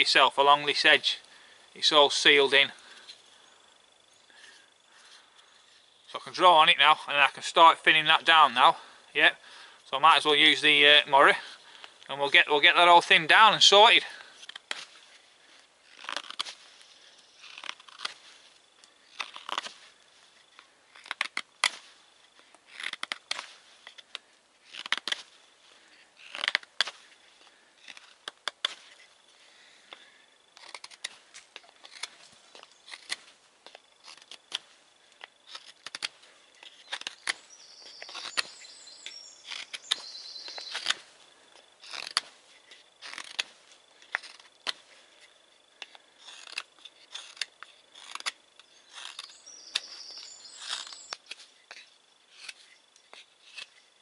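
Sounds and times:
knife scraping wood: 0:13.6 - 0:54.0.

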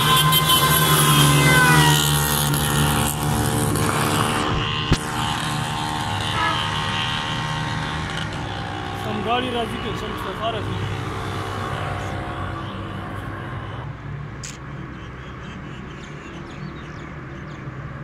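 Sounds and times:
motorcycle engine passing by: 0:00.0 - 0:12.7
traffic rumble: 0:00.0 - 0:18.0.

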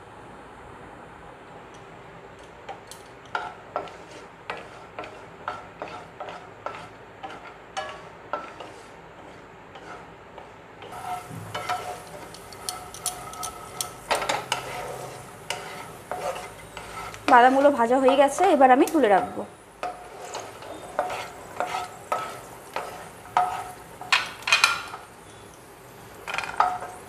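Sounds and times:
oil sizzling: 0:02.4 - 0:27.0
spatula scraping frying pan: 0:03.2 - 0:25.5, 0:26.1 - 0:27.0.

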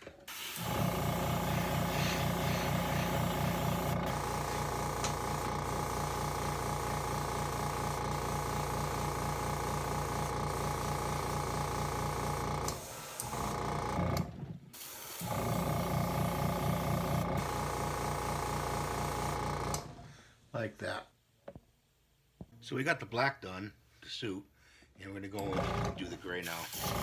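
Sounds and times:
air compressor pulsing hum: 0:00.2 - 0:20.1, 0:25.5 - 0:27.0
airbrush spraying hiss: 0:00.3 - 0:13.5, 0:14.8 - 0:19.2.

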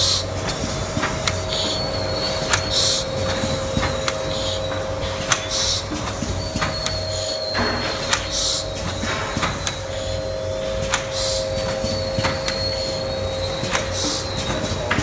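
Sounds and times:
laminating machine hum: 0:00.0 - 0:15.0
machine clicks: 0:07.6 - 0:10.0, 0:10.8 - 0:12.9, 0:13.5 - 0:15.0.

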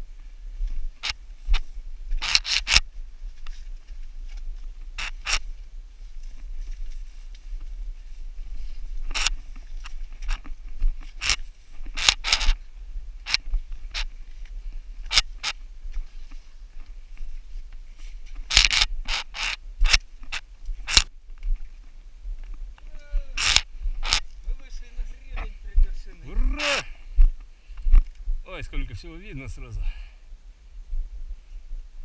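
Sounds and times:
gear scraping on rock: 0:04.9 - 0:05.6, 0:08.5 - 0:14.2, 0:18.0 - 0:21.1.

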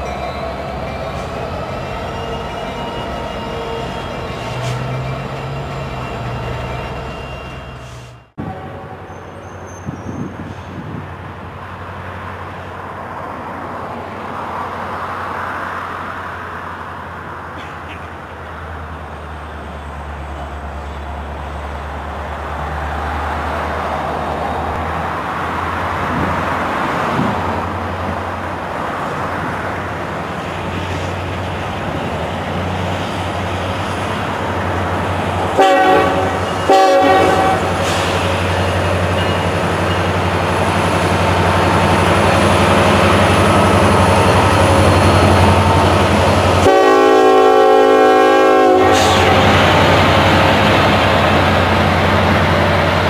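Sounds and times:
diesel locomotive engines droning: 0:00.0 - 0:53.0
train horn blasts: 0:35.5 - 0:37.9, 0:46.5 - 0:49.7.

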